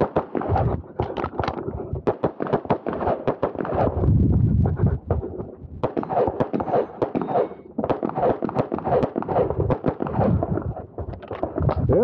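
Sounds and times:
handgun shots echoing: 0:05.8 - 0:10.4.

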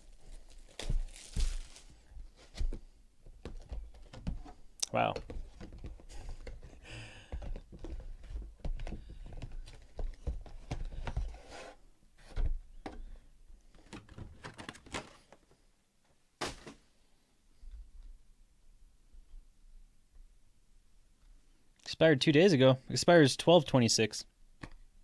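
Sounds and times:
rustle of card and paper: 0:00.0 - 0:02.8.

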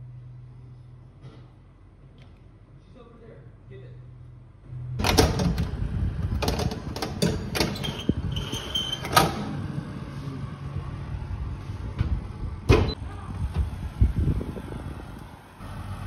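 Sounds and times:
oven door shutting: 0:05.0 - 0:09.8
metal baking tray scraping on rack: 0:07.2 - 0:10.4.

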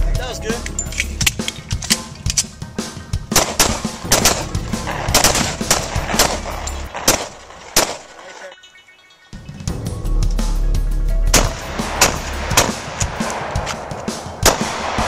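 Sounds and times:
pistols firing rapidly: 0:03.3 - 0:08.2, 0:11.4 - 0:15.0.

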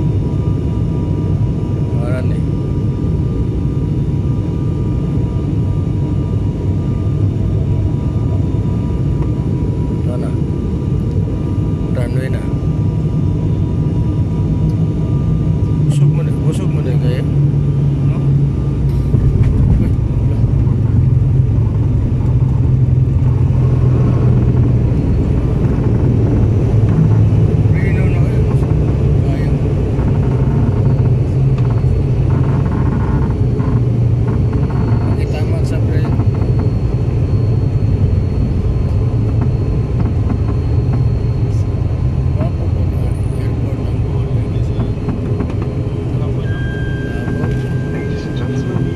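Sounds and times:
faint steady whine: 0:00.0 - 0:48.9
turboprop engines droning: 0:00.0 - 0:48.9
wheels rumbling on runway: 0:18.0 - 0:48.9.

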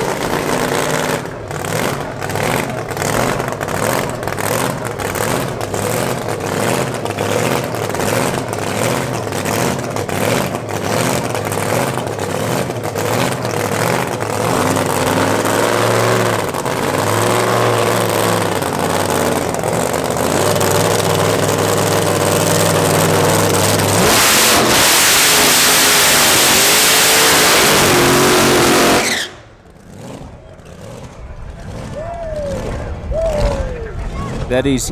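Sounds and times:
racing car engine revving: 0:00.0 - 0:34.9.

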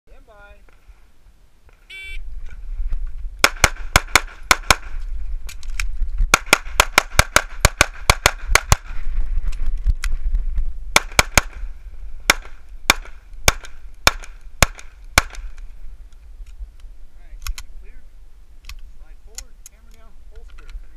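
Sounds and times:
pistol shots: 0:03.4 - 0:05.0, 0:06.3 - 0:08.9, 0:11.0 - 0:11.6, 0:12.3 - 0:15.5.

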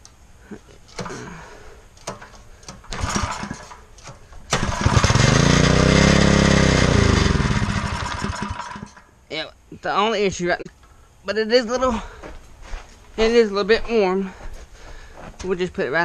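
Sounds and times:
engine knocks and rattles: 0:02.0 - 0:09.1
mini bike engine revving: 0:03.0 - 0:03.8, 0:04.5 - 0:09.0.

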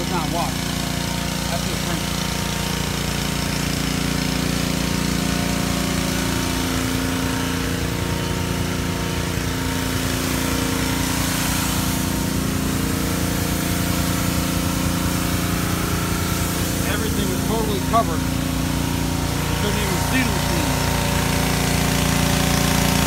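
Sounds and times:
pressure washer running: 0:00.0 - 0:23.0
water jet hissing: 0:00.0 - 0:23.0.

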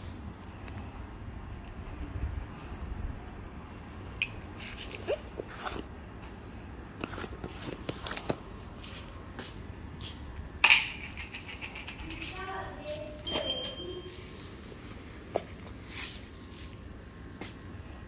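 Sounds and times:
small bell ringing: 0:13.1 - 0:14.5.

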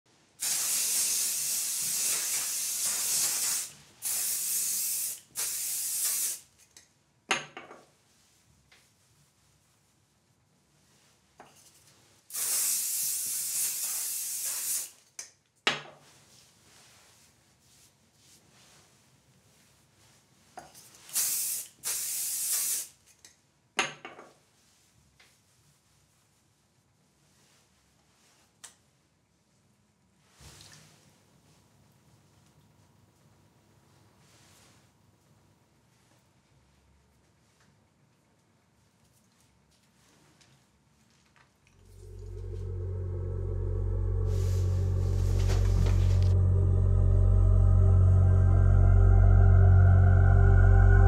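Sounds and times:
aerosol spray hissing: 0:00.4 - 0:06.4, 0:12.3 - 0:15.0, 0:21.1 - 0:22.9.

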